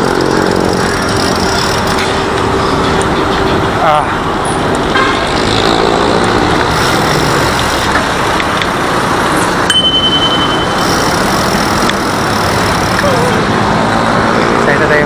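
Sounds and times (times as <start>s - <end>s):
highway traffic noise: 0.0s - 15.0s
thin high tone: 9.6s - 13.4s.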